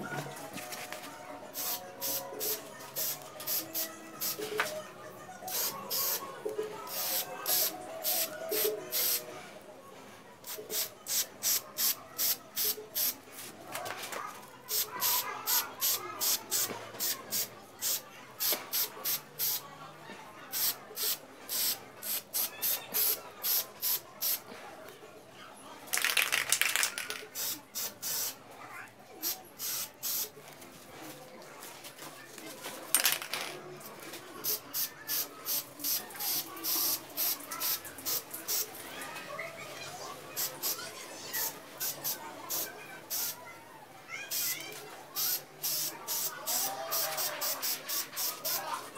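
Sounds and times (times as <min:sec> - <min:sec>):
spray can hissing bursts: 0:01.6 - 0:04.4, 0:05.5 - 0:06.2, 0:06.9 - 0:09.2, 0:10.4 - 0:13.2, 0:14.7 - 0:19.6, 0:20.5 - 0:24.4, 0:26.1 - 0:28.4, 0:29.2 - 0:30.3, 0:34.4 - 0:38.7, 0:40.4 - 0:40.8, 0:41.4 - 0:43.4, 0:44.3 - 0:44.6, 0:45.2 - 0:48.6.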